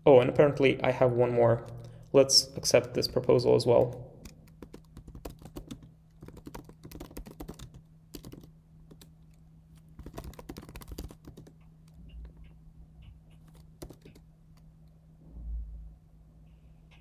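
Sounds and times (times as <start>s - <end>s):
faint steady hum: 0.0s - 17.0s
computer keyboard typing: 1.6s - 9.4s, 10.0s - 12.4s, 13.4s - 14.3s.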